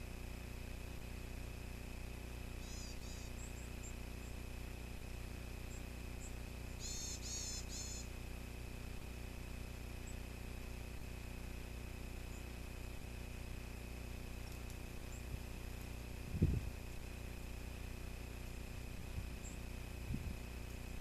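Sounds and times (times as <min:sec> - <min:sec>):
faint whine: 0:00.0 - 0:21.0
low hum: 0:00.0 - 0:21.0
bird giving high nasal calls: 0:02.6 - 0:03.5, 0:06.8 - 0:08.1.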